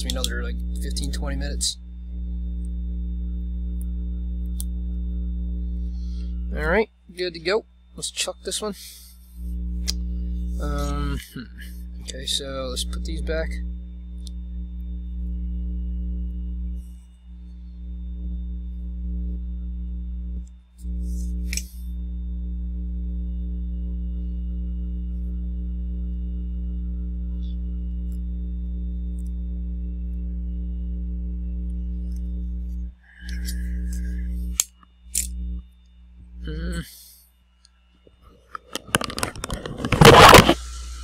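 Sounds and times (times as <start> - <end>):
sharp click: 0.0 - 0.9, 34.5 - 35.4
low electrical hum: 0.0 - 41.0.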